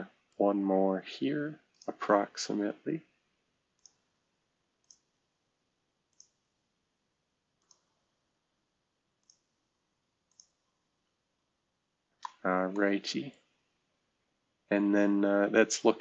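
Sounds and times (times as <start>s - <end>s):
computer mouse clicks: 3.7s - 4.2s, 4.8s - 5.2s, 6.1s - 6.6s, 7.6s - 8.2s, 9.2s - 9.6s, 10.3s - 10.8s, 12.2s - 12.4s.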